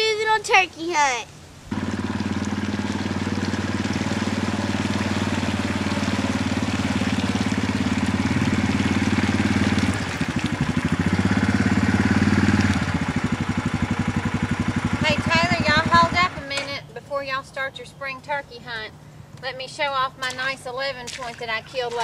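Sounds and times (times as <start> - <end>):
atv engine running and idling: 1.7 - 16.4.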